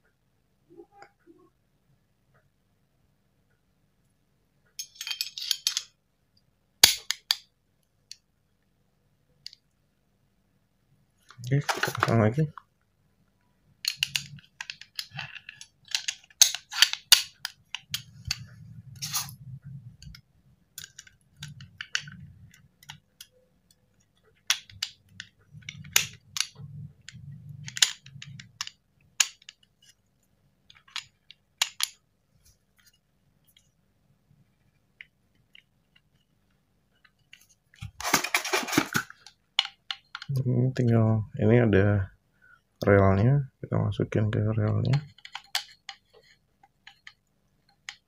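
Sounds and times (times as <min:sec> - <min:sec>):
metallic clicks of pistol parts: 0:06.8 - 0:07.5, 0:13.8 - 0:19.2, 0:20.8 - 0:30.0, 0:30.7 - 0:32.0, 0:44.9 - 0:48.0
handling noise: 0:11.3 - 0:12.5, 0:34.6 - 0:40.2.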